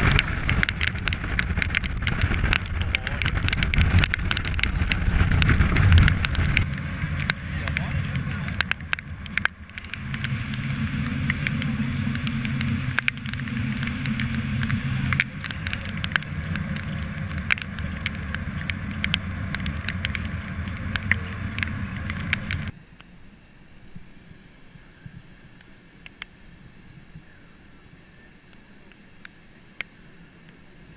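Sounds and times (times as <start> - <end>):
wind buffeting microphone: 0.0 - 22.7
sharp crackling clicks: 0.0 - 23.1, 25.6 - 26.4.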